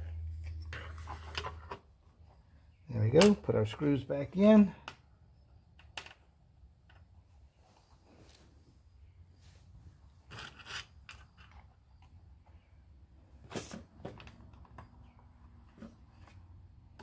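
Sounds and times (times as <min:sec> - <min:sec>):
small clatter: 0:10.2 - 0:12.7.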